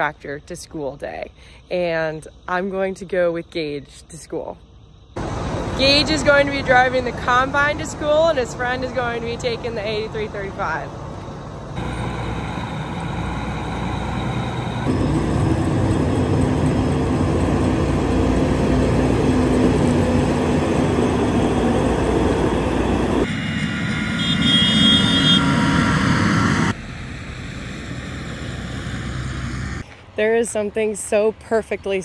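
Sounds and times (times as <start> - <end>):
diesel engines humming: 0.0 - 32.0
high whine: 4.6 - 30.0.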